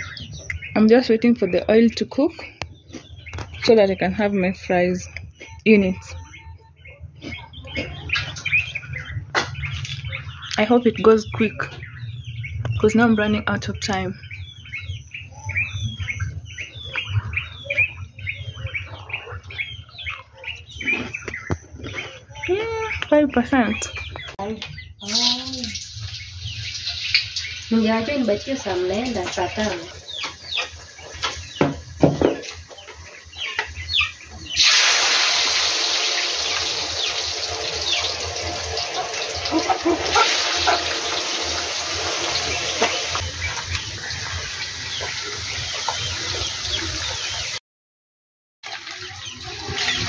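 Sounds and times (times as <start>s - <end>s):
birds chirping: 0.0s - 47.6s, 48.8s - 50.0s
chickens clucking: 0.0s - 47.6s, 48.7s - 50.0s
potatoes sizzling in hot oil: 25.0s - 29.8s, 34.6s - 47.6s.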